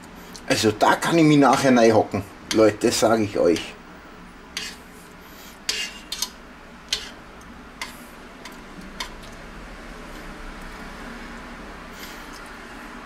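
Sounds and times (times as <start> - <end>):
spoon stirring soup in metal pot: 4.5 - 9.4.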